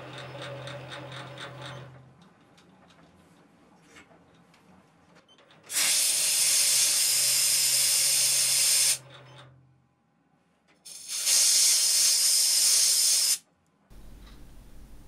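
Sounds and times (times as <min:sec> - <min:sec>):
compressed air blow gun hissing: 0:05.7 - 0:09.0, 0:10.9 - 0:13.4.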